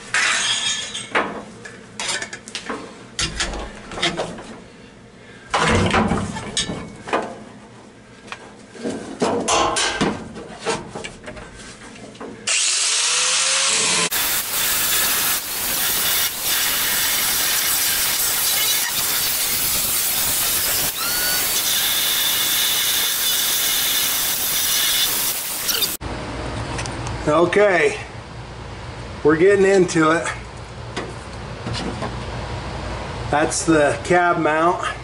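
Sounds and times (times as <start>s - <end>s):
angle grinder cutting sheet metal: 12.5s - 26.0s.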